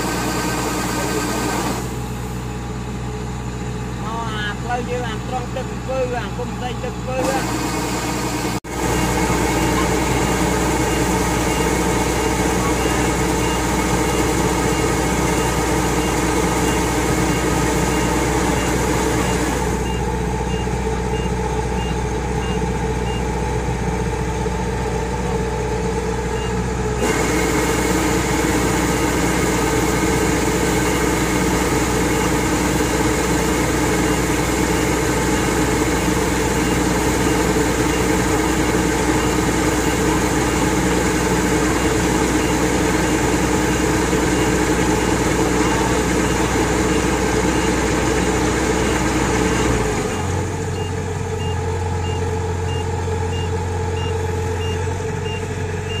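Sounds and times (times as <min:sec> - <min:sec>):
farm machinery engine drone: 0:00.0 - 0:56.0
reversing alarm beeping: 0:09.0 - 0:23.3, 0:48.8 - 0:56.0.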